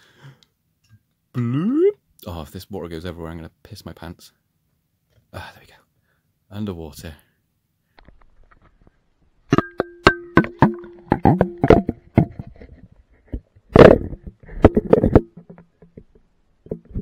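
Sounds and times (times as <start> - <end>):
plastic housing knocking on glass: 9.5 - 12.4.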